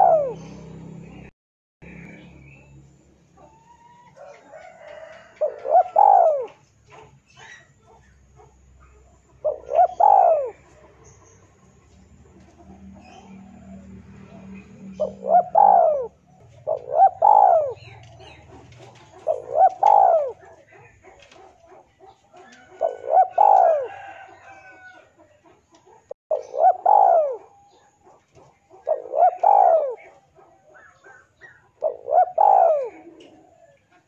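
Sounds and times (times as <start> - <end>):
dove cooing: 0.0 - 0.6, 3.4 - 34.0.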